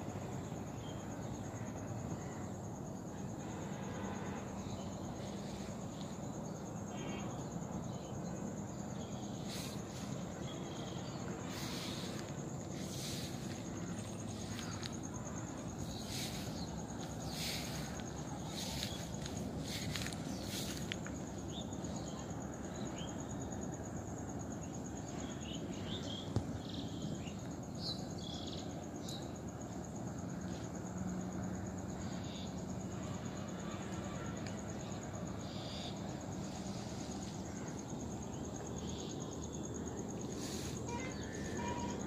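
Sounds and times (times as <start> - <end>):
low background rush: 0.0 - 25.0
insects trilling: 0.0 - 42.0.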